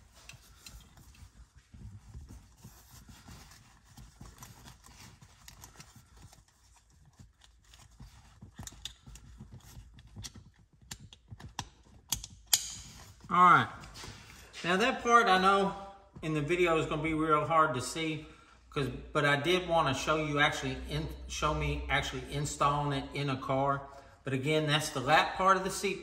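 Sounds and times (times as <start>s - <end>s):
nylon straps rustling: 0.0s - 14.6s.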